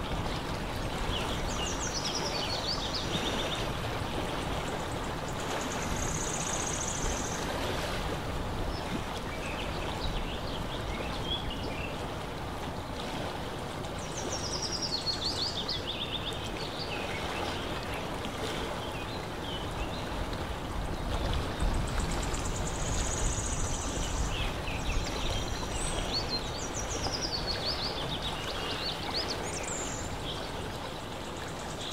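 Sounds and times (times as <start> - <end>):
water lapping: 0.0 - 31.9
wind: 0.0 - 31.9
small birds trilling and chirping: 4.6 - 7.5, 20.9 - 31.9.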